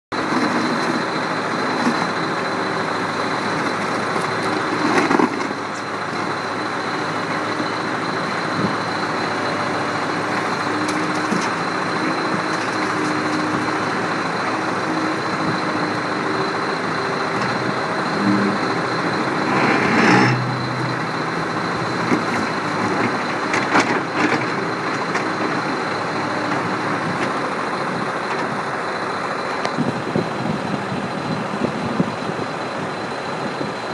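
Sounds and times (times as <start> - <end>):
excavator diesel engine: 0.1 - 33.9
clunks and scrapes: 3.6 - 5.9, 10.8 - 13.6, 17.4 - 21.2, 21.8 - 25.6.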